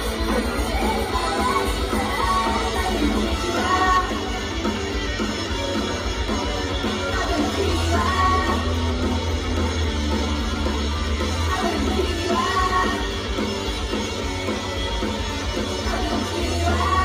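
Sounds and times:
loud rock music with heavy bass: 0.0 - 17.0
women singing into microphones: 0.1 - 4.3, 7.1 - 8.7, 11.5 - 13.2, 15.8 - 17.0.

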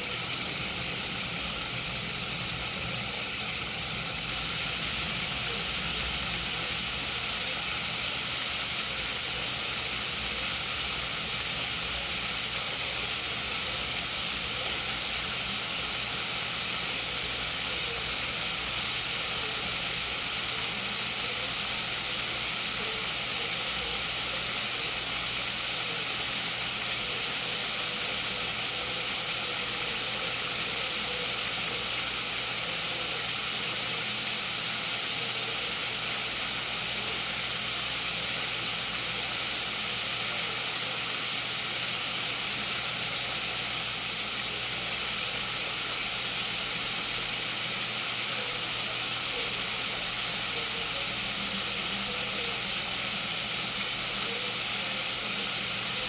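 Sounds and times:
chicken sizzling in hot oil: 0.0 - 56.0.

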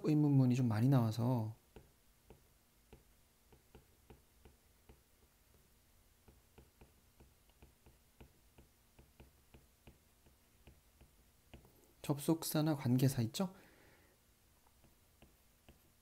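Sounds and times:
stylus tapping on tablet screen: 1.7 - 11.8, 14.6 - 16.0.

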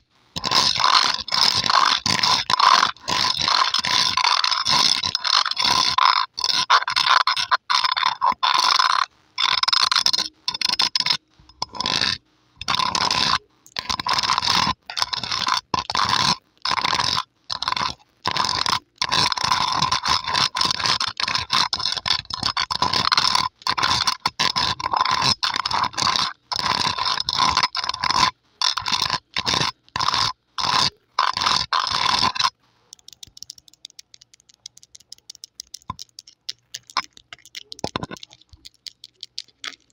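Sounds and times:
fingernails scratching microphone grille: 0.4 - 34.0, 34.7 - 39.9.

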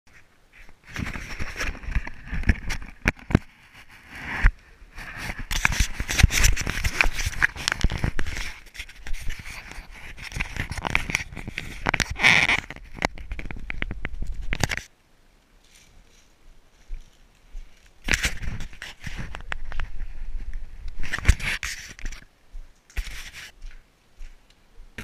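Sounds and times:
camera handling rubbing and clicking: 0.6 - 4.5, 5.1 - 14.9, 18.0 - 20.0, 20.9 - 23.8.

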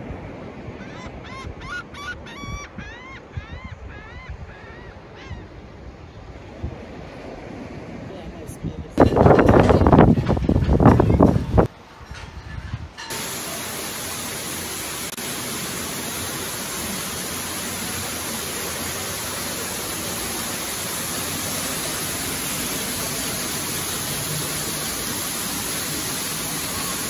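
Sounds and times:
indoor waterfall rushing: 13.1 - 27.0.

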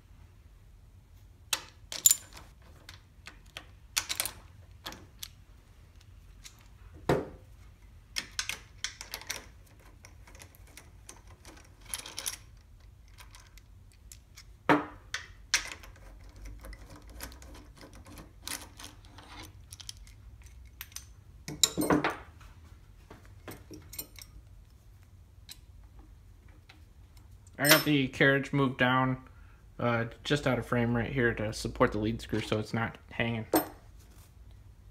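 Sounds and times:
metal parts clicking and clanking: 1.5 - 6.8, 8.1 - 22.2, 23.4 - 24.5, 25.4 - 28.0.

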